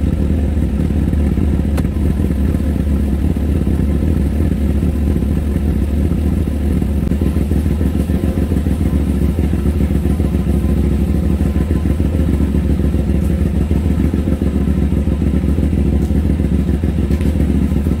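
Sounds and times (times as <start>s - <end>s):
motorcycle engine idling: 0.0s - 18.0s.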